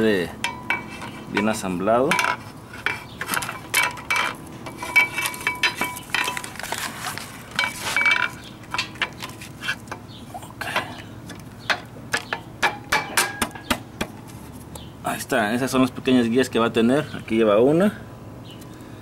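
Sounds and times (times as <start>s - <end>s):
metal clinks and scrapes: 0.4s - 9.9s.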